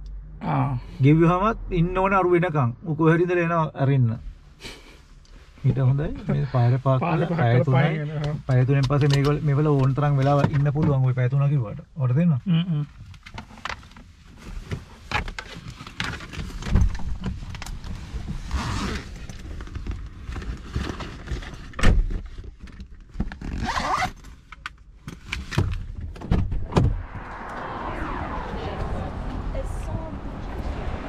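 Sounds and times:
handling rustling and scrapes: 0:13.5 - 0:23.6.

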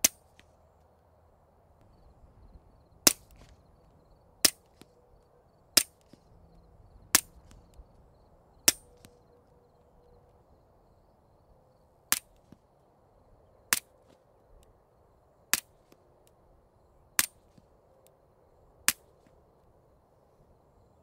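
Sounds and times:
suppressed pistol shots: 0:07.1 - 0:07.8, 0:08.7 - 0:09.2.

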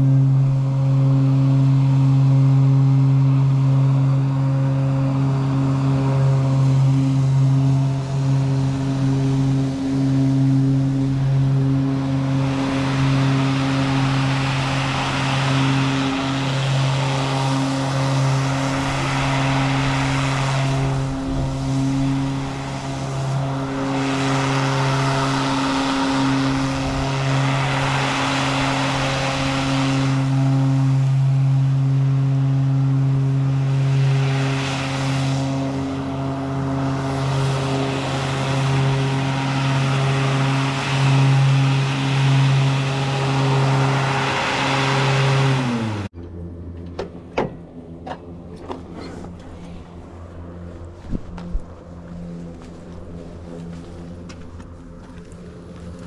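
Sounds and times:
engine running steadily: 0:00.0 - 0:56.0
scattered clicks and knocks: 0:46.2 - 0:49.4.

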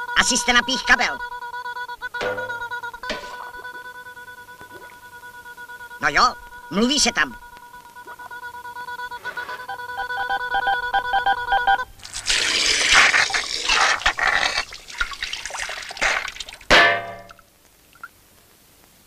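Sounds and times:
pulsing electronic beeping tone: 0:06.5 - 0:11.9
gushing water spraying: 0:12.0 - 0:16.7.

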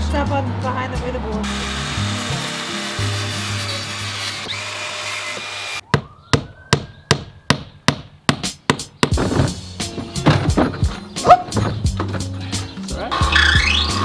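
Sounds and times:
hammer striking nail into wood: 0:05.9 - 0:09.5.

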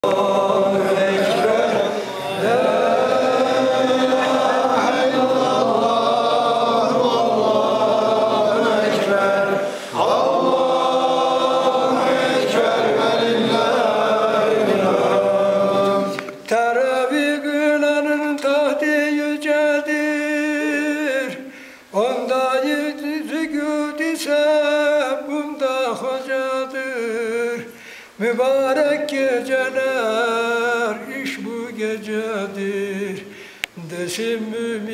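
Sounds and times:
group of voices chanting: 0:00.0 - 0:16.3.

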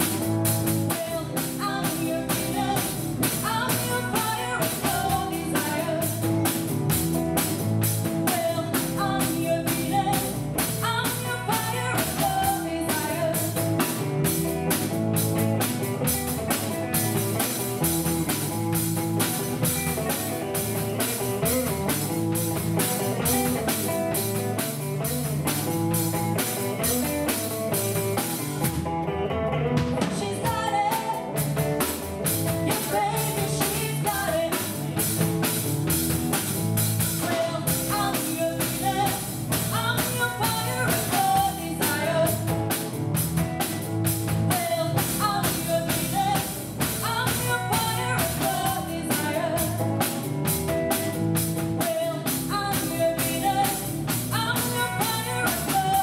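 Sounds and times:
bass guitar: 0:00.0 - 0:56.0
drum kit beat: 0:00.0 - 0:56.0
electric guitar: 0:00.0 - 0:56.0
woman singing: 0:00.7 - 0:06.6, 0:08.1 - 0:14.0, 0:30.0 - 0:35.1, 0:37.0 - 0:42.9, 0:44.4 - 0:50.3, 0:51.7 - 0:56.0.

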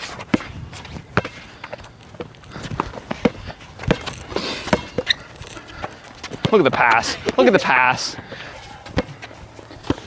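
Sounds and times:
running footsteps: 0:00.0 - 0:10.0
basketball bouncing on court: 0:08.8 - 0:09.2.

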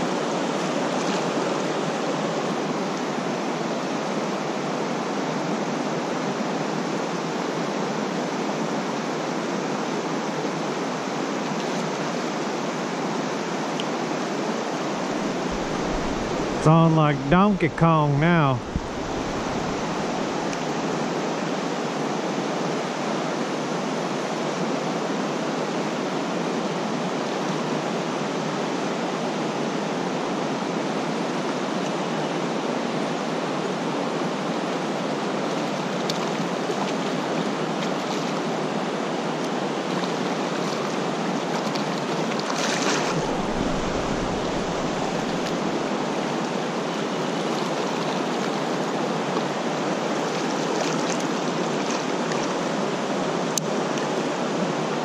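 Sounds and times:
creek rushing over rocks: 0:14.5 - 0:22.0, 0:39.5 - 0:55.0
low rumble: 0:15.2 - 0:16.6.

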